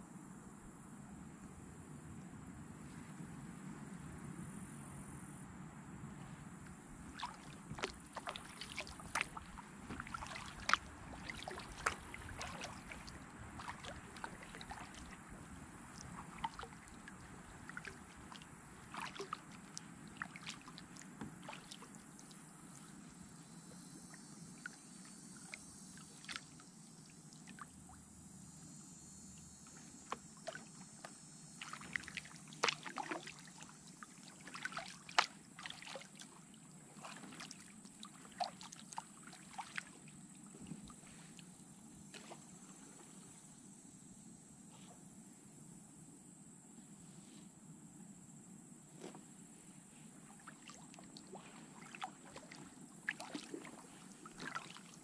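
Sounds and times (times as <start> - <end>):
kayak paddle dipping and splashing: 6.3 - 28.1, 29.4 - 43.8, 48.9 - 55.0.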